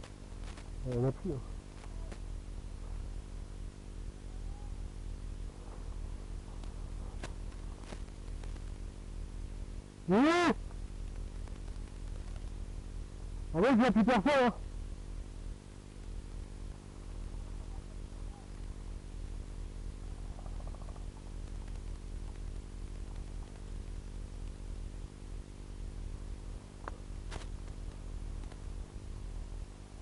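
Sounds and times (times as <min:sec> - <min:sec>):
camera electrical hum and hiss: 0:00.0 - 0:30.0
sharp clicks: 0:10.7 - 0:12.6.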